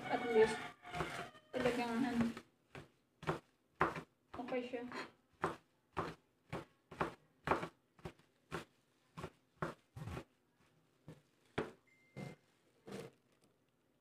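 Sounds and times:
knife chopping garlic: 0.9 - 4.6, 5.3 - 10.3.

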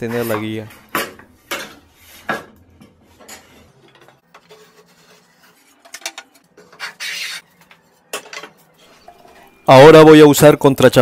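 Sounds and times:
sharp scrape: 6.6 - 7.5.

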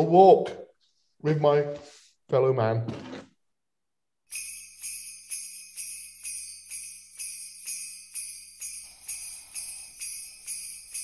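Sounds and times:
jingle bells shaking: 4.3 - 11.0.

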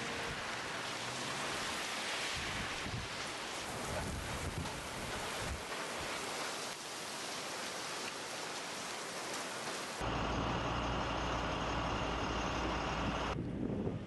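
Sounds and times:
heavy rain and wind: 0.0 - 14.0.

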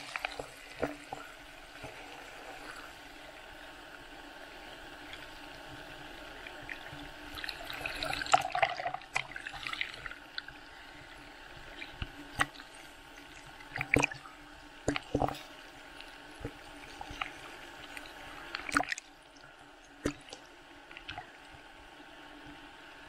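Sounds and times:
foam fizzing and sloshing: 0.0 - 3.4
water splashing and crackling: 0.0 - 21.6.

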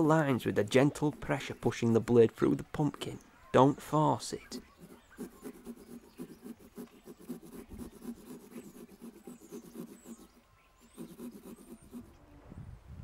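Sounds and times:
small saw sawing pumpkin: 4.4 - 12.2.

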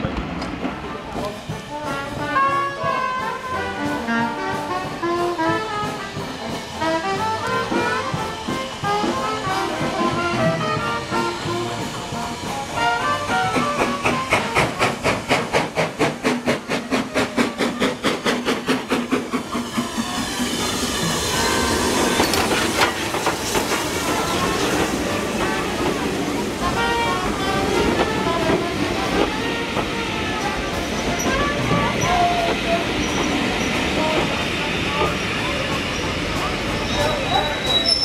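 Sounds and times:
brass melody: 1.5 - 14.8, 23.8 - 32.4.

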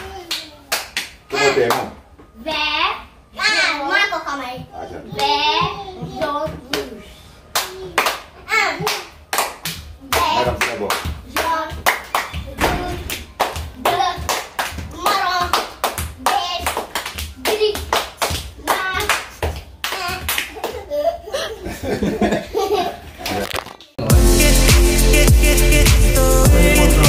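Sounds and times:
children clapping in rhythm: 7.5 - 20.8.

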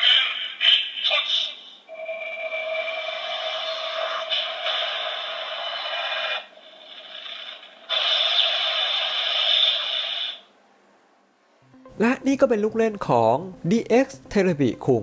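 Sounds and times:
toy electronic sound effects: 0.0 - 6.5.

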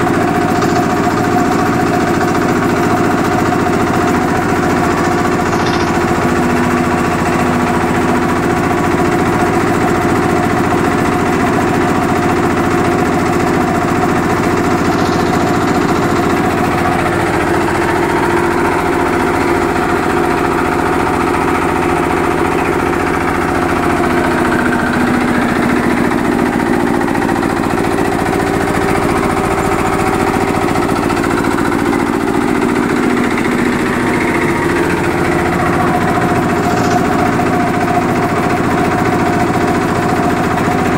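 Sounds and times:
diesel engine running: 0.0 - 40.9
piston air compressor pumping: 12.7 - 18.6.

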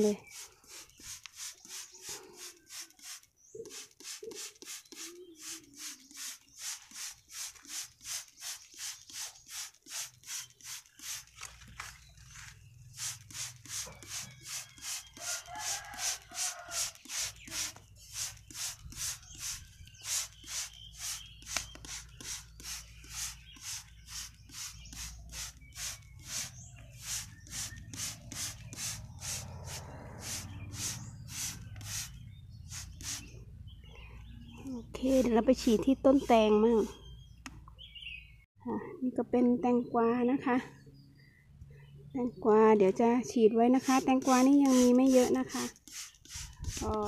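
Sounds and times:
spray bottle squirting: 0.0 - 11.8, 12.8 - 33.4, 43.8 - 47.0.

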